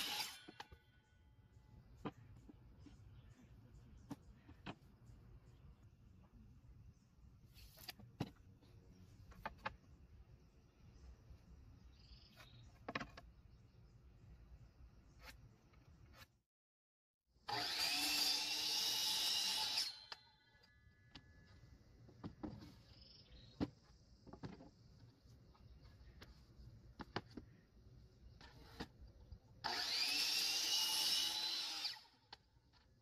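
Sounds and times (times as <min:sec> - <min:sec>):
miter saw cutting wood: 0:00.0 - 0:00.8, 0:17.4 - 0:20.2, 0:29.6 - 0:32.3.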